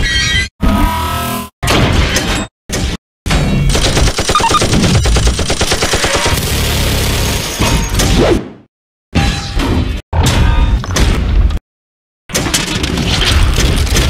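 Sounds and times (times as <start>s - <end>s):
machine-gun automatic fire: 3.7s - 7.4s.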